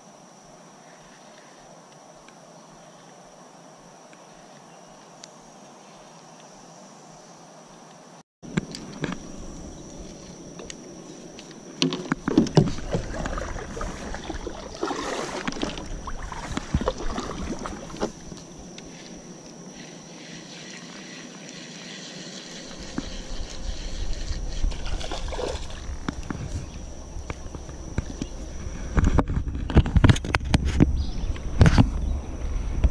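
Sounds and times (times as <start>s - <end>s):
high insect drone: 0.0s - 32.9s
knocks and rubbing on hull: 11.8s - 18.4s
water sloshing against kayak: 11.8s - 29.8s.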